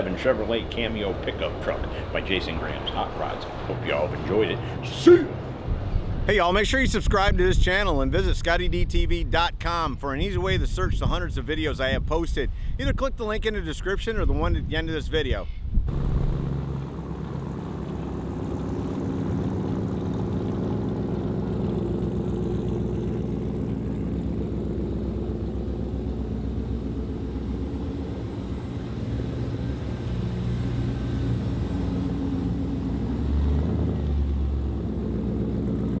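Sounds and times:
engine idling: 0:15.9 - 0:36.0.

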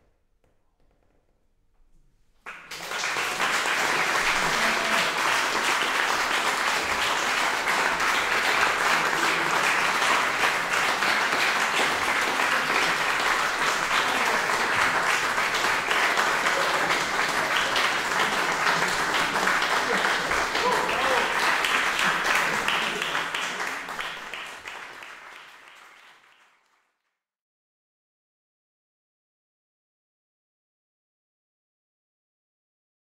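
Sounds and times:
audience applause: 0:02.4 - 0:27.0.

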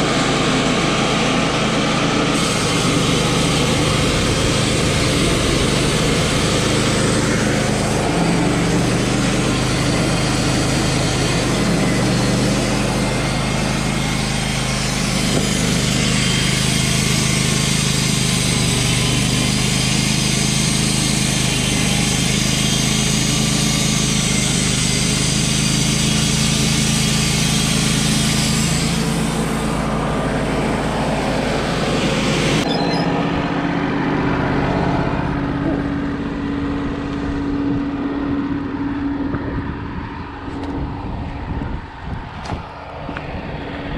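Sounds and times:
sawmill engine running: 0:00.0 - 0:43.9
band saw blade hissing: 0:02.3 - 0:29.4.

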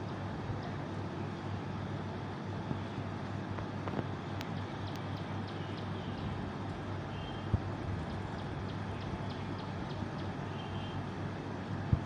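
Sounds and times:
low outdoor hum: 0:00.0 - 0:12.0
faint high ticks: 0:03.5 - 0:05.9
faint chirp: 0:07.0 - 0:07.5, 0:08.3 - 0:11.0.

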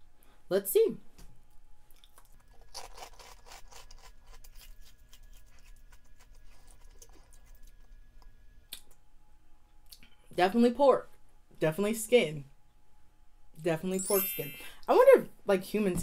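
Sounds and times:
chewing crunchy pork rinds: 0:01.8 - 0:08.0.

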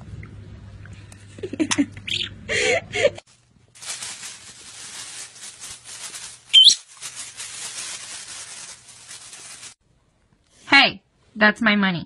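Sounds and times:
rustling crackling noise: 0:03.2 - 0:09.8
parrot whistle-like call: 0:06.5 - 0:06.8.

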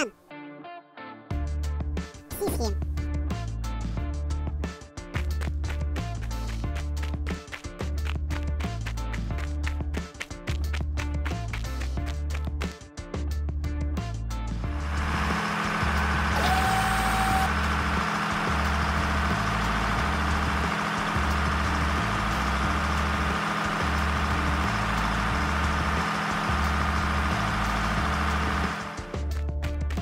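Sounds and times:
heavy truck engine running: 0:14.6 - 0:29.4.

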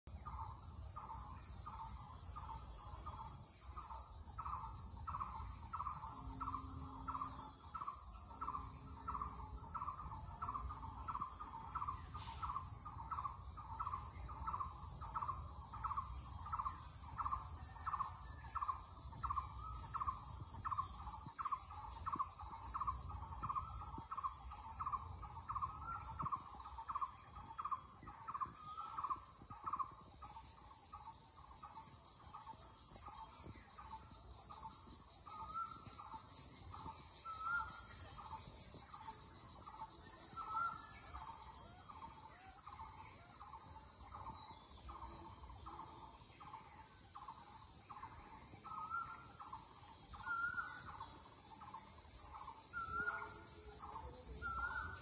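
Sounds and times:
high-pitched insect chorus: 0:00.0 - 0:55.0.

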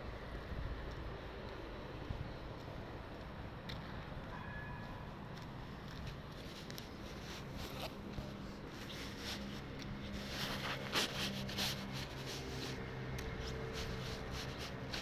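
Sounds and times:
phone rubbing against clothing: 0:06.4 - 0:15.0.

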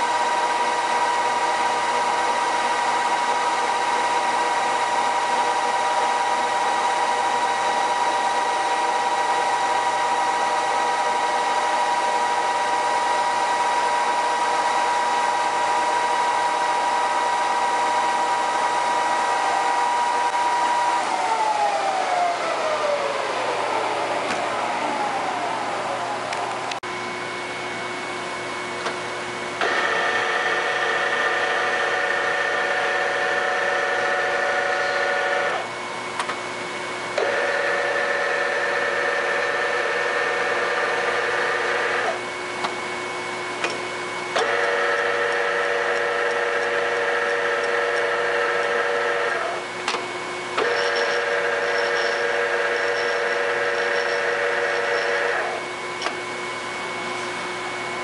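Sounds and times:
gear whine: 0:00.0 - 0:26.8, 0:29.6 - 0:35.8, 0:37.2 - 0:42.4, 0:50.5 - 0:56.1
lathe humming: 0:00.0 - 0:58.0.

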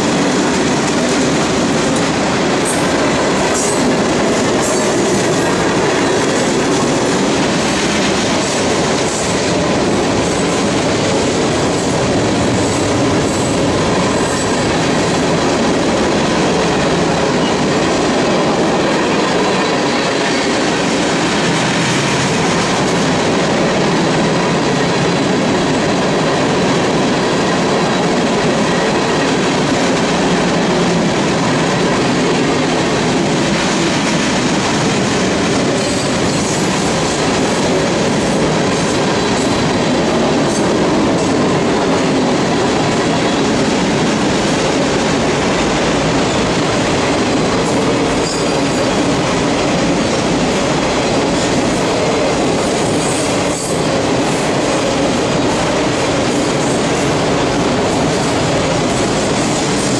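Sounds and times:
freight train rumbling past: 0:00.0 - 0:59.9
steel wheels clattering on rail: 0:00.0 - 0:59.9.

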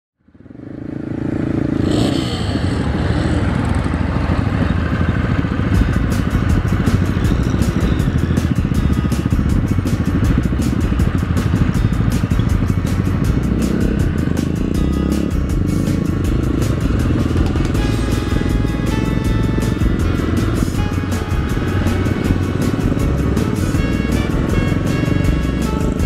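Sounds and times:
motorcycle engines rumbling: 0:00.2 - 0:26.0
regular high ticking: 0:05.7 - 0:26.0.

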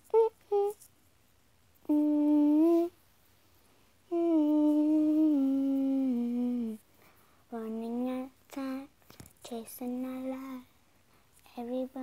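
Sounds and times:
girl humming: 0:00.0 - 0:00.8, 0:01.8 - 0:03.0, 0:04.1 - 0:06.8.

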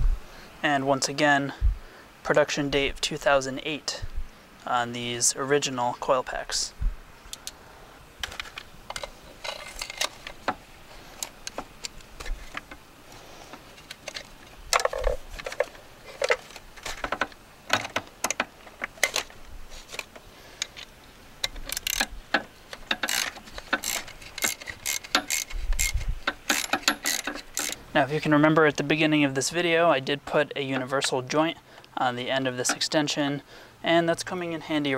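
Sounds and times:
socket ratchet clicking: 0:21.4 - 0:27.8.

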